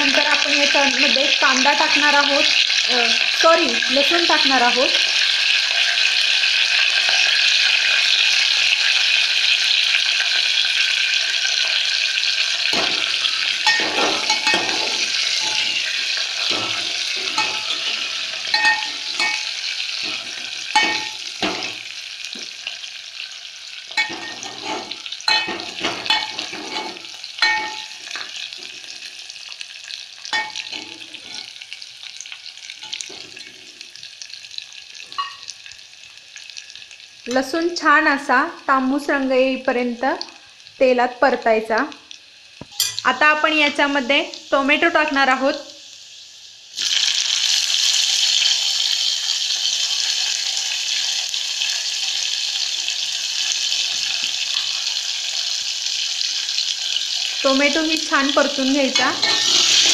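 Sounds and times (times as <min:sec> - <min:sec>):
spices sizzling in hot oil: 0:00.0 - 0:59.9
metal spoon scraping pot: 0:12.8 - 0:21.8, 0:23.9 - 0:28.9, 0:30.4 - 0:31.6, 0:58.8 - 0:59.9.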